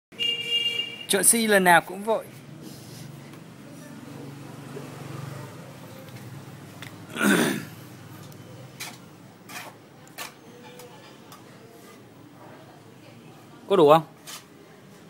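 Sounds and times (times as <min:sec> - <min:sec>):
person's throat sound: 0:07.1 - 0:07.8.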